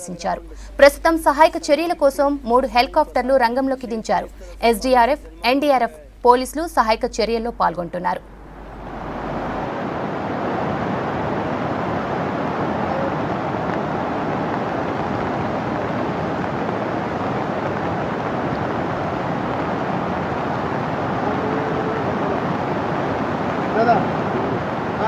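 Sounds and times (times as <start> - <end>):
river water rushing: 8.3 - 25.0.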